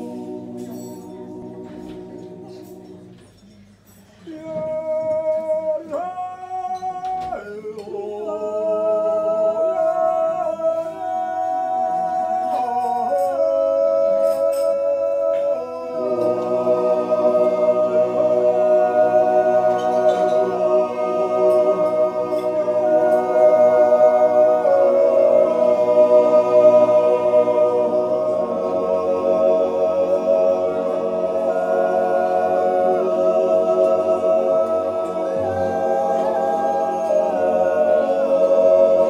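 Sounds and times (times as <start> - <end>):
men's choir sustained chord: 0.0 - 3.3, 5.4 - 39.0.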